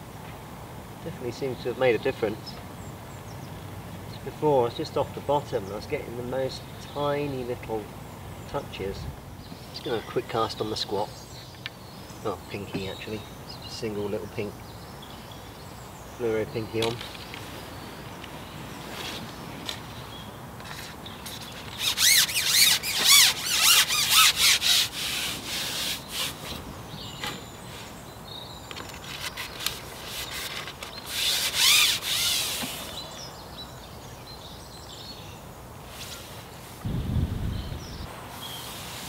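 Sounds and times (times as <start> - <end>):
fishing pole scraping and squeaking: 20.6 - 26.3, 28.8 - 33.0
low thump: 36.8 - 38.1.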